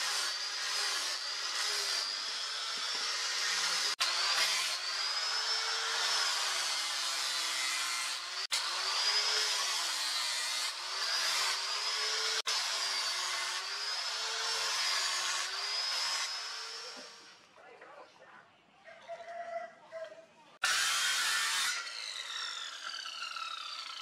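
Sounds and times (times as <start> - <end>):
angle grinder sanding wood: 0.0 - 17.4.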